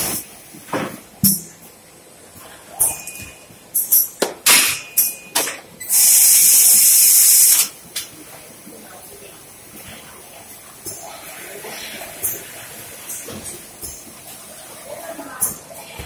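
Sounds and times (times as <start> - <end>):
sealing machine hisses and clacks: 0.0 - 0.6, 5.8 - 7.8
sealing machine steady hiss: 5.8 - 7.8.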